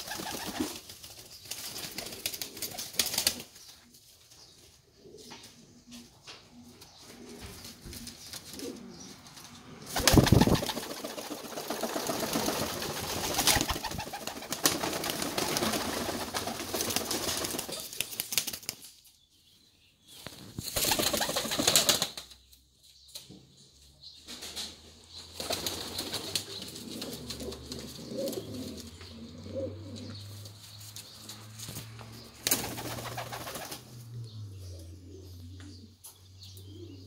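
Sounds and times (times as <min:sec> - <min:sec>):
wings flapping: 0:00.0 - 0:03.5, 0:09.4 - 0:18.9, 0:20.6 - 0:22.3, 0:25.4 - 0:28.8, 0:32.4 - 0:34.0
pigeons cooing: 0:04.9 - 0:17.0, 0:25.5 - 0:30.5, 0:32.6 - 0:37.0.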